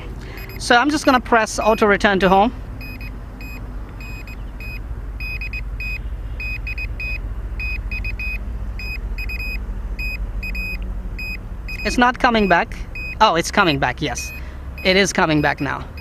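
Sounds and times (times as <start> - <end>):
remote controller beeping: 0.4 - 1.2, 2.8 - 13.2.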